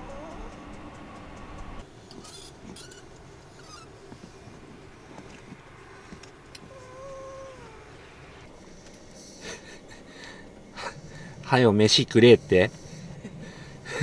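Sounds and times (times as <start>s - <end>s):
dog whining: 0.0s - 0.8s, 6.6s - 8.5s
faint rustles: 0.0s - 14.0s.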